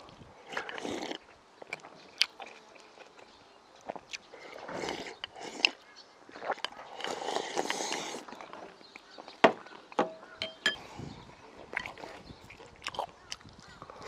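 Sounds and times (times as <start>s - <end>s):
slurping soup: 0.0s - 3.2s, 3.9s - 9.0s, 10.7s - 14.0s
chopsticks clinking on dishes: 10.4s - 10.8s.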